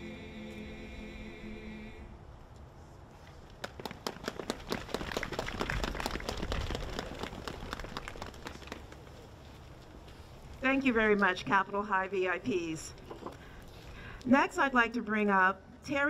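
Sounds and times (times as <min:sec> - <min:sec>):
audience clapping: 0:03.6 - 0:09.1.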